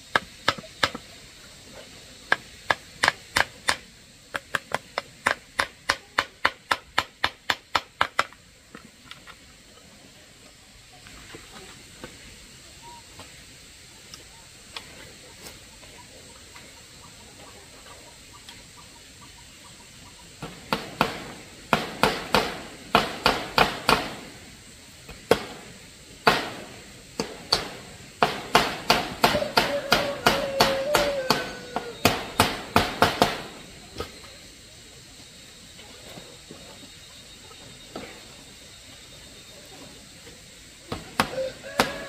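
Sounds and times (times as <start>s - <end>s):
faint steady hiss: 0.0s - 42.0s
hammer striking nails into wood: 27.2s - 33.5s.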